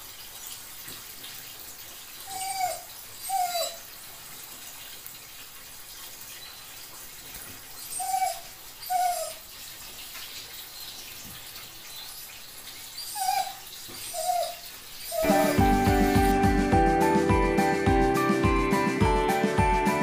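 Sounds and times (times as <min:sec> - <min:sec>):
tap water running into bathtub: 0:00.0 - 0:16.7
dog whining: 0:02.3 - 0:03.9, 0:07.8 - 0:09.5, 0:13.0 - 0:16.4.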